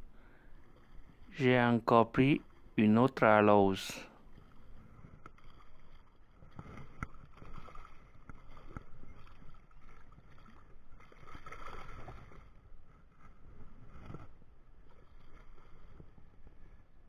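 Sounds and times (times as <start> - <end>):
fish thrashing and splashing: 4.2 - 17.0.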